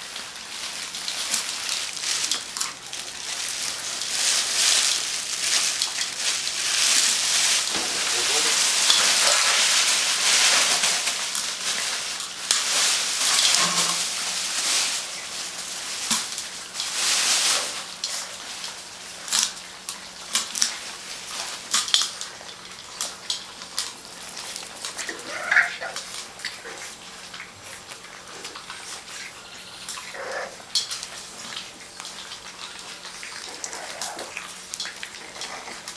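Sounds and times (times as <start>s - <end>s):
puppies lapping and smacking: 0.0s - 35.9s
puppy yelp: 25.0s - 26.1s.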